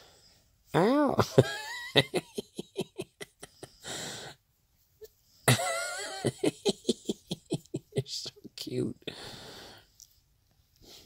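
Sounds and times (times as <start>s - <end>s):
breath: 0.0s - 0.5s, 3.8s - 4.4s, 9.1s - 10.0s
man laughing: 1.2s - 3.9s, 5.5s - 8.5s.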